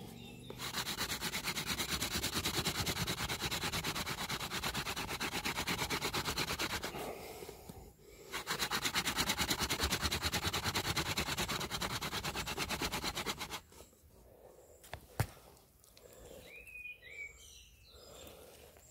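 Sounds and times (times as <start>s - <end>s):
wooden spindle grinding wood: 0.0s - 7.3s, 8.2s - 13.9s.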